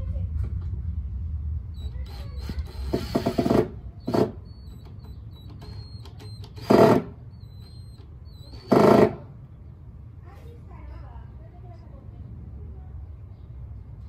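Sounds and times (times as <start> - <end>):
cordless drill driving screws: 1.8 - 9.3
drill bit clattering: 1.8 - 9.3.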